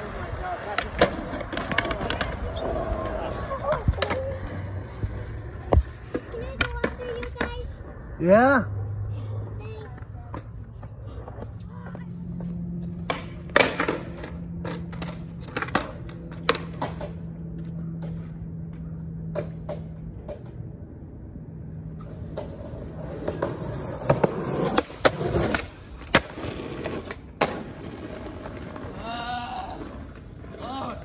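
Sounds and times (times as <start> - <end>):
skateboard wheels rolling on concrete: 0.0 - 31.0
skateboard wooden clacks: 0.7 - 7.7, 19.2 - 20.7.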